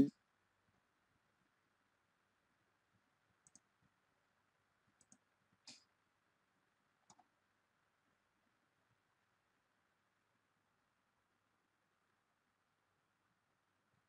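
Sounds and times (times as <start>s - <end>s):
computer mouse clicks: 3.4s - 3.7s, 5.0s - 5.8s, 7.0s - 7.3s.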